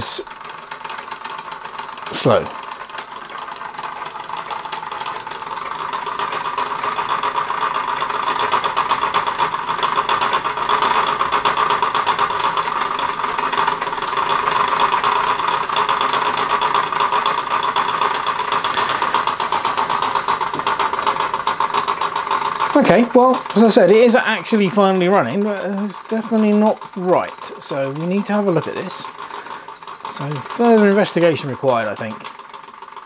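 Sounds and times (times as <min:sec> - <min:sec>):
toy steam engine running: 0:00.0 - 0:33.0
steam hissing: 0:06.7 - 0:31.2.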